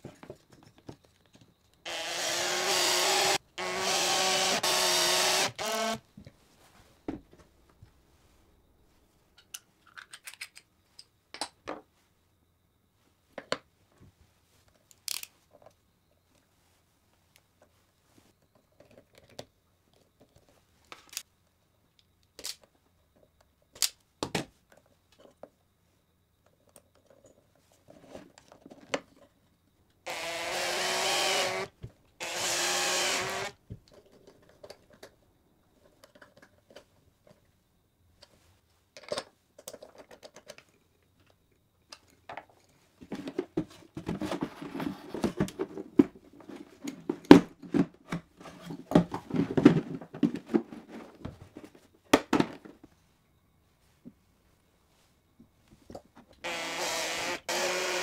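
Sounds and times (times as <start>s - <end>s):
electric drill running: 1.9s - 6.0s, 30.1s - 33.5s, 56.4s - 58.0s
knocking and clattering of tools: 42.0s - 52.9s.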